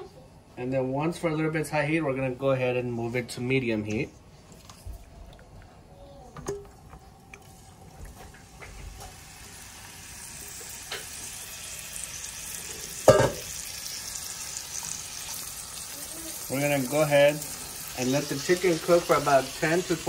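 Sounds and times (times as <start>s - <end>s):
chicken sizzling in oil: 7.5s - 20.0s.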